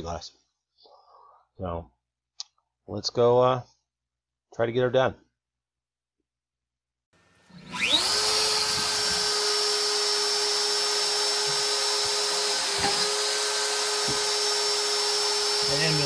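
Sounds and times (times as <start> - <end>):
router spinning with high whine: 7.2 - 16.0.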